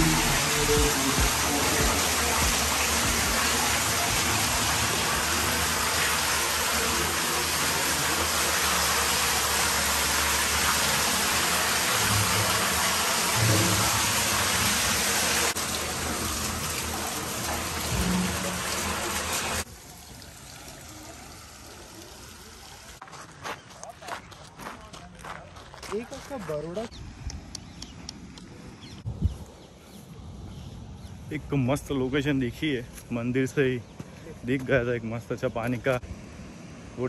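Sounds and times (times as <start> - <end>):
flowing river water: 0.0 - 23.1.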